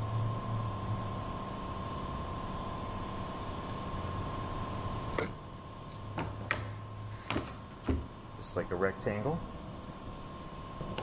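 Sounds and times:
workshop background hum: 0.0s - 11.0s.

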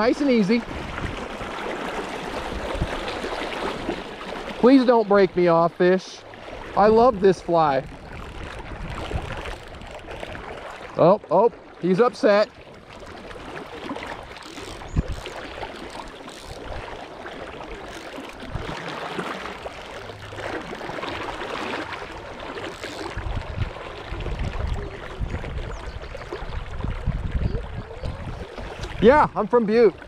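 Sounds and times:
wind buffeting microphone: 0.0s - 4.0s, 6.6s - 10.7s, 14.2s - 15.6s, 23.1s - 29.9s
river current rushing: 0.0s - 24.2s.

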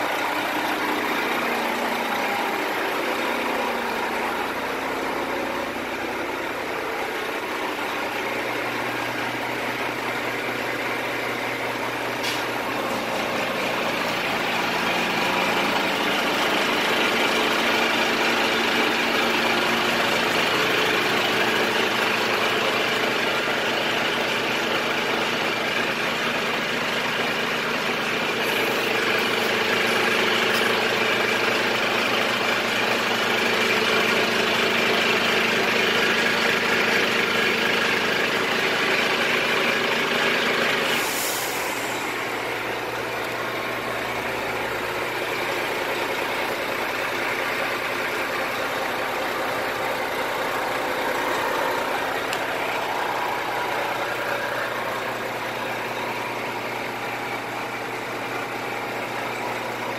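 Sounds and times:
diesel truck engine idling: 0.0s - 59.9s
short hiss: 40.9s - 42.0s.

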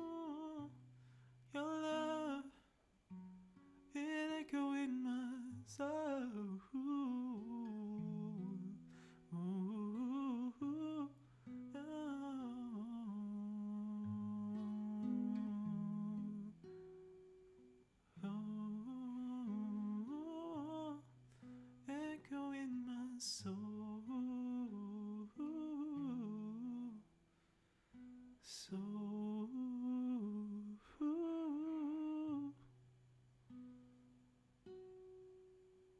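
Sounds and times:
man humming a melody: 0.0s - 0.8s, 4.1s - 11.1s, 11.8s - 16.6s
nylon-string guitar playing: 3.1s - 27.0s.

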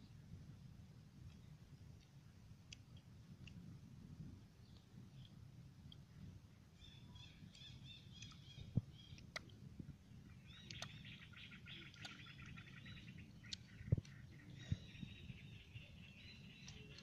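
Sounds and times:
small birds chirping: 4.6s - 17.0s.

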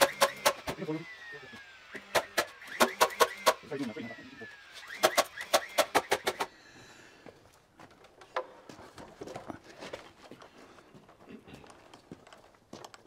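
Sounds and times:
nail gun shots: 0.0s - 0.8s, 1.9s - 3.6s, 4.9s - 6.5s.

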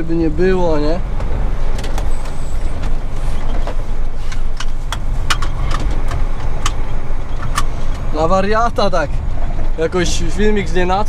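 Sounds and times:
diesel truck engine running: 0.0s - 11.0s
sharp clicks: 4.3s - 8.0s.

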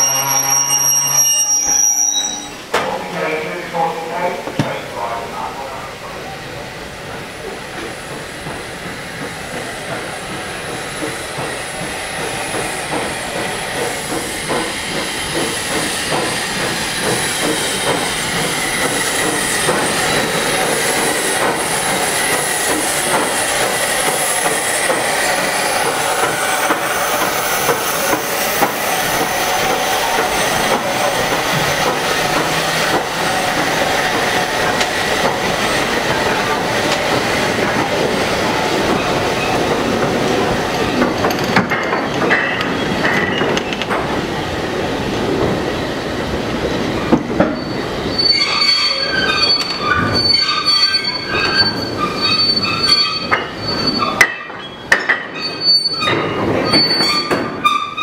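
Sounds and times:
high squeal: 0.0s - 2.7s, 47.5s - 58.0s
steam locomotive: 0.0s - 58.0s.

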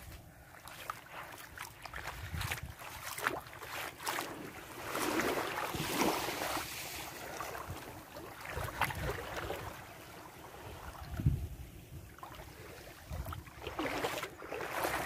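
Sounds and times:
waves washing onto sand: 0.0s - 15.0s
wind rumbling on microphone: 1.8s - 3.2s, 5.2s - 15.0s.

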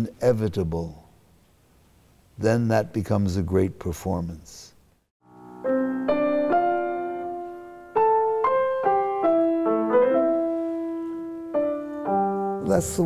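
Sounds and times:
grand piano played slowly: 5.2s - 13.0s.

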